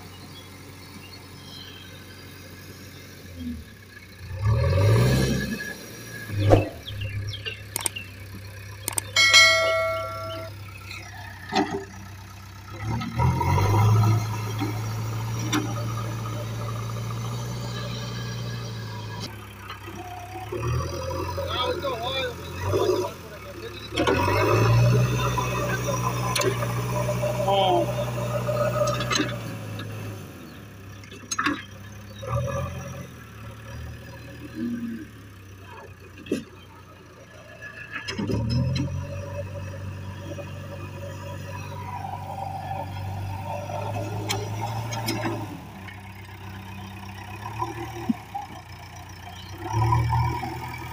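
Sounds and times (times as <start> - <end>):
diesel engine running: 0.0 - 50.9
clicks: 7.7 - 8.0, 8.8 - 10.5
bell ding: 9.2 - 10.6.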